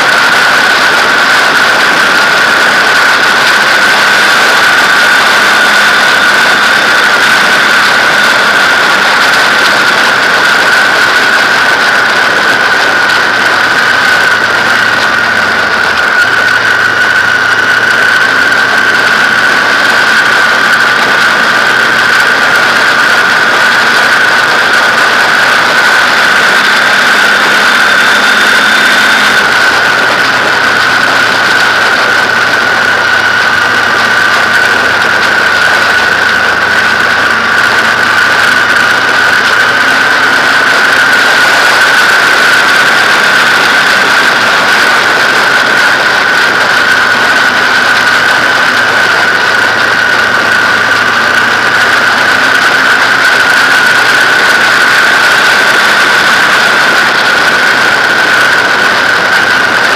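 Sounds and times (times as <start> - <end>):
high whine: 0.0 - 59.9
motorcycle engine cruising: 0.0 - 59.9
wind rush: 0.0 - 59.9.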